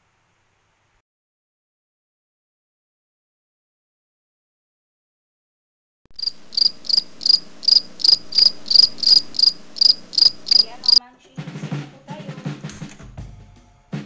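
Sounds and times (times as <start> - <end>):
faint low hum: 6.2 - 11.0
music with low drum hits: 11.4 - 14.0.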